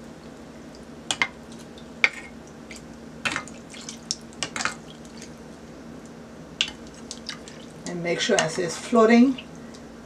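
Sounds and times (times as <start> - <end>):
dough frying in hot oil: 0.0 - 9.3
oil popping and splashing: 2.6 - 5.4, 6.6 - 7.8.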